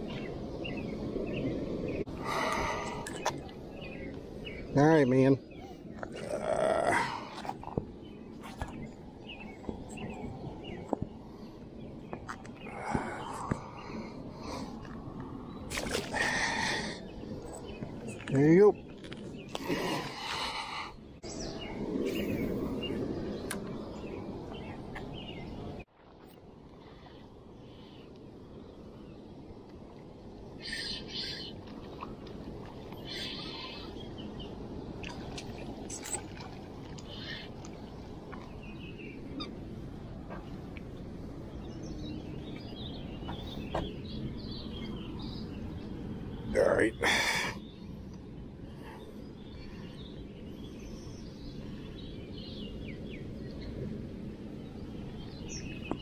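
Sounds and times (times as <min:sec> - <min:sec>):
small birds chirping: 0:00.0 - 0:25.9, 0:26.9 - 0:56.0
faint bird chirps: 0:32.9 - 0:34.2.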